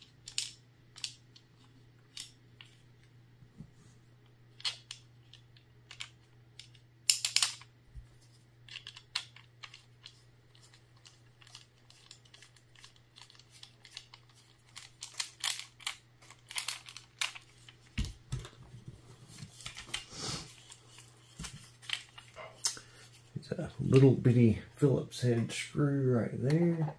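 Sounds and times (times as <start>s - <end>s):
steady low hum: 0.0s - 26.9s
magazine parts clicking and scraping: 0.1s - 2.8s, 4.5s - 7.7s, 8.6s - 17.9s, 19.4s - 23.3s.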